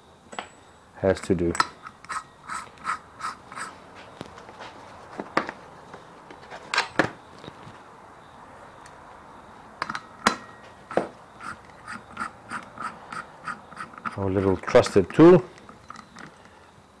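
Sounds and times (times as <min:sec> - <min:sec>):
hand tools clicking and clinking: 0:01.2 - 0:03.7, 0:09.8 - 0:16.6.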